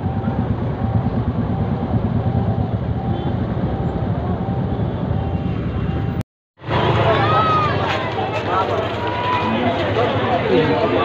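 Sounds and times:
vehicle engine rumble and road noise: 0.0s - 11.0s.

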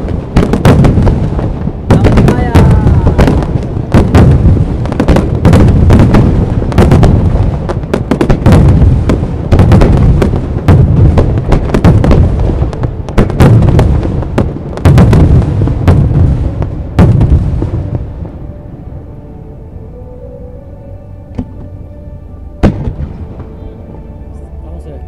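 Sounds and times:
fireworks booming: 0.0s - 18.4s, 22.6s - 24.0s
fireworks crackling: 0.0s - 19.1s, 22.6s - 25.0s.

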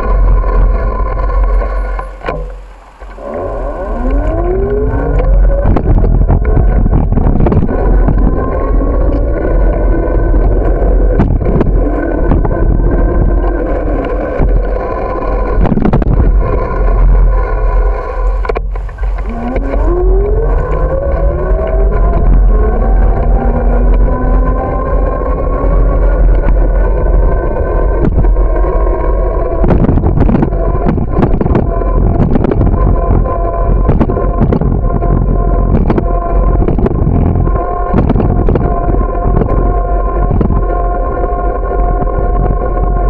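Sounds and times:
motorbike engine accelerating: 0.0s - 40.7s
wind rumble on microphone: 0.0s - 43.0s.

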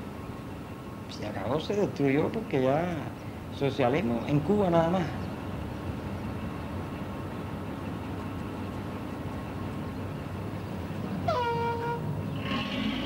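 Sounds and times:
street background noise: 0.0s - 13.0s
short horn toot: 11.3s - 12.1s.

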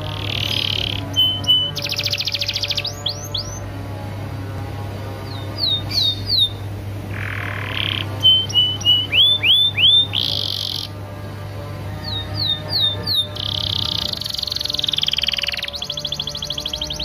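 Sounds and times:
canary singing: 0.0s - 17.0s
low hum: 0.0s - 17.0s.

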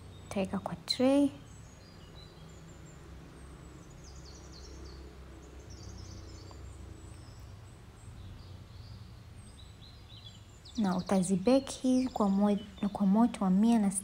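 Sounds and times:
birds chirping faintly: 0.0s - 14.0s
low steady hum: 0.0s - 14.0s.

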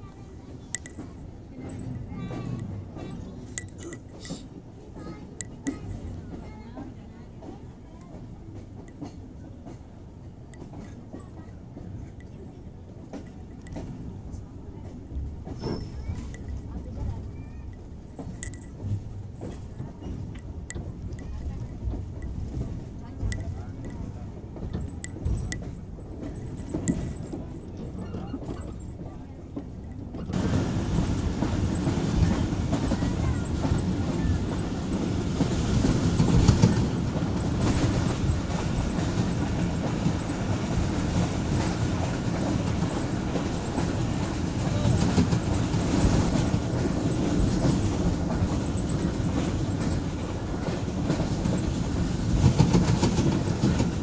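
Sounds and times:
train wheels rumbling on rails: 0.0s - 54.0s.

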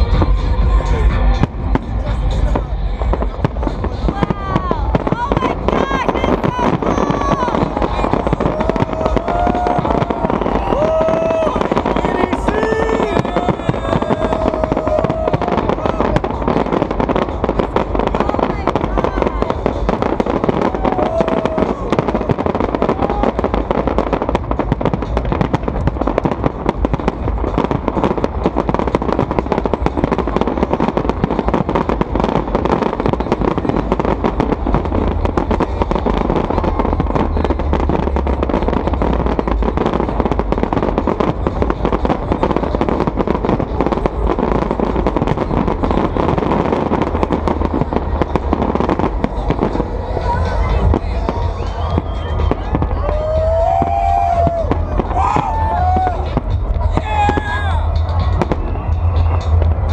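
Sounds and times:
fireworks bangs: 0.0s - 59.9s
fireworks crackling: 0.0s - 59.9s.

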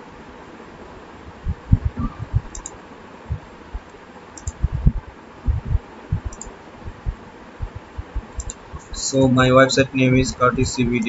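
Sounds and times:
low thumps: 1.3s - 2.6s, 3.3s - 3.9s, 4.5s - 9.0s
computer mouse clicking: 1.9s - 2.8s, 3.8s - 5.0s, 6.2s - 6.5s, 7.6s - 8.6s.

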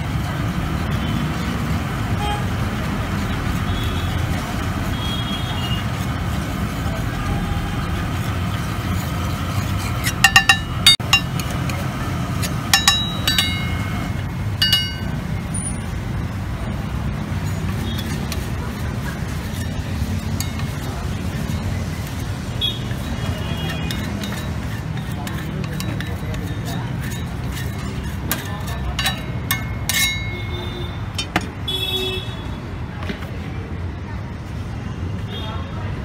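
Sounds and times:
spatula scraping metal griddle: 2.6s - 15.2s, 17.2s - 31.3s.

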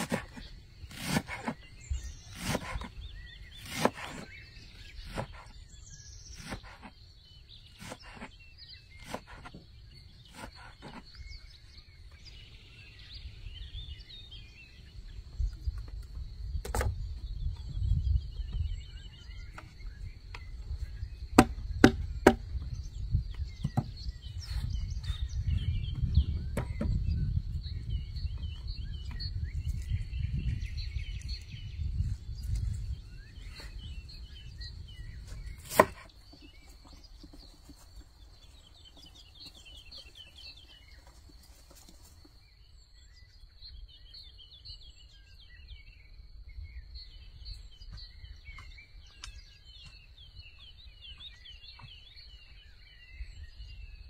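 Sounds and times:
birds chirping: 0.0s - 54.0s
sharp knocks: 21.4s - 22.6s.

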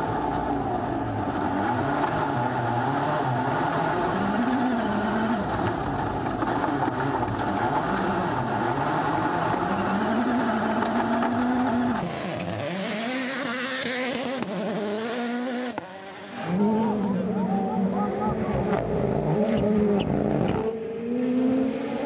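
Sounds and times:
car engine revving: 0.0s - 22.0s
tyres on gravel: 3.9s - 14.7s.

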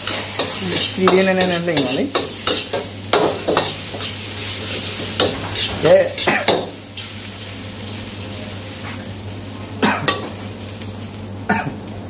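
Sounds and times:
metal ladle scraping wok: 0.0s - 7.1s
oil sizzling in a wok: 0.0s - 12.0s.

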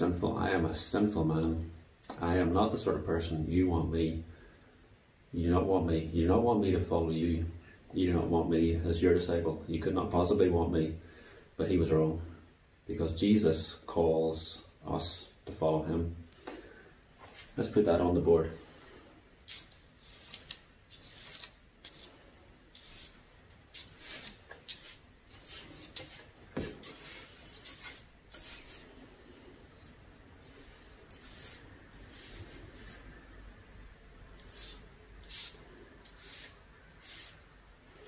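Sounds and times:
marker pen rubbing on paper: 19.5s - 28.9s, 31.1s - 33.0s, 34.4s - 37.4s.

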